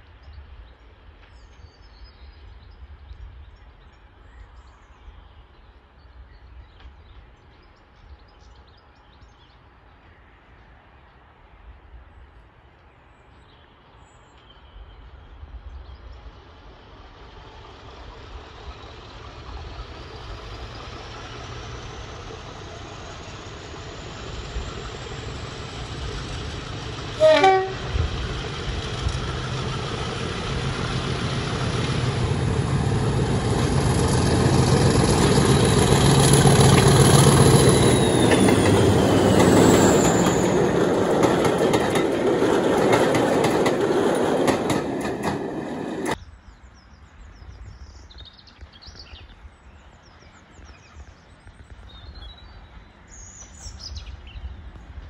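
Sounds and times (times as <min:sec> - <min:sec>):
diesel locomotive engine whine: 0:15.0 - 0:46.2
short horn blast: 0:27.2 - 0:28.0.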